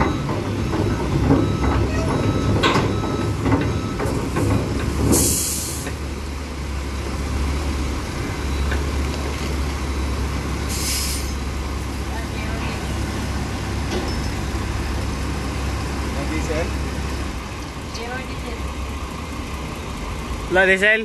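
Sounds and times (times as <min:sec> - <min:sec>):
heavy diesel machinery rumble: 0:00.0 - 0:21.0
hissing air release: 0:05.1 - 0:05.9, 0:10.7 - 0:11.4.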